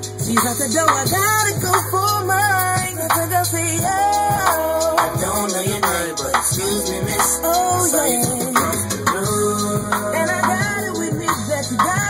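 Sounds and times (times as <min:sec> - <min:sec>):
hip-hop song with heavy bass: 0:00.0 - 0:12.0.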